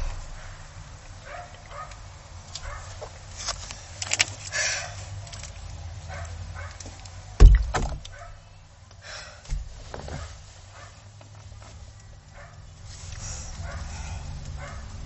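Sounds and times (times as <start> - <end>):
heavy thump: 0.0 - 1.3, 7.4 - 8.1, 9.5 - 10.3.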